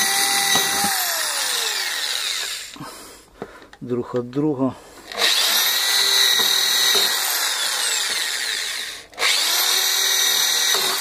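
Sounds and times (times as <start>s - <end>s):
electric drill drilling plastic: 0.0s - 2.8s, 5.1s - 11.0s.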